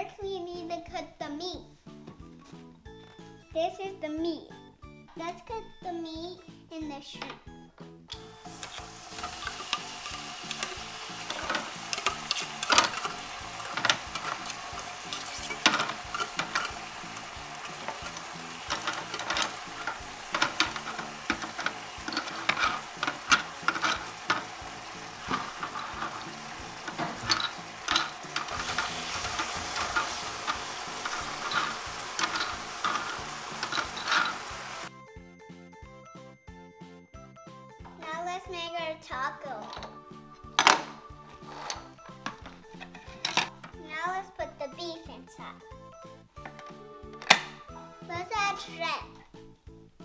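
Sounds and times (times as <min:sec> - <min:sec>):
frying sizzle: 0:08.1 - 0:34.9
toy utensils clacking on wood: 0:08.1 - 0:34.9, 0:39.6 - 0:43.8, 0:46.4 - 0:47.6.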